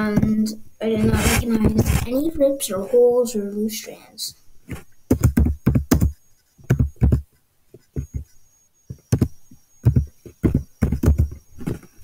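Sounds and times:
keyboard typing: 4.7 - 11.8.

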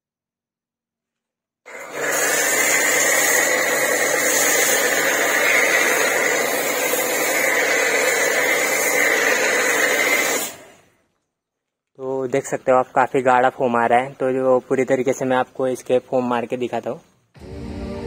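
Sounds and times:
pressure washer hiss and whine: 1.7 - 10.8.

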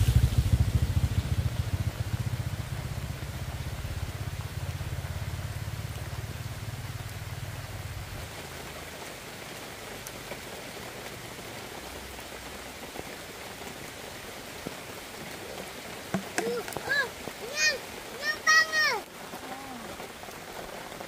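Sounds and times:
watery hiss: 0.0 - 2.6, 14.8 - 20.2
engine throbbing: 0.0 - 7.9.

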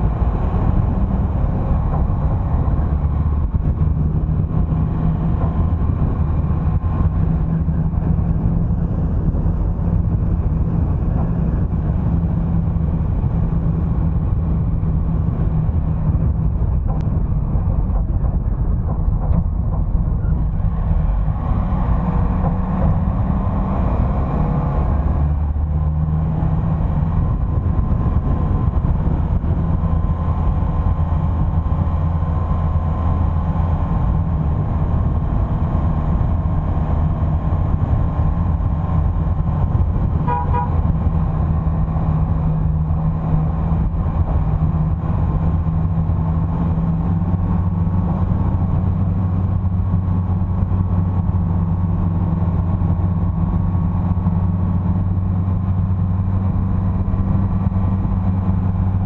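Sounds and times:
vehicle engine droning: 0.0 - 59.0
car horn toot: 40.2 - 40.8.

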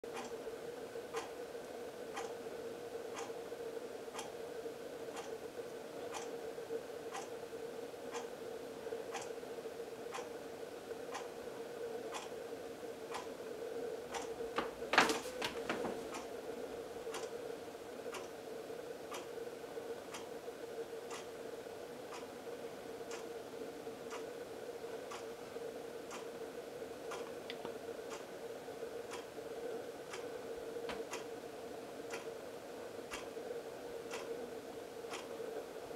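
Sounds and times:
steady hum: 0.0 - 35.9
steady ticking: 7.1 - 7.4, 13.0 - 15.0, 17.0 - 17.4.

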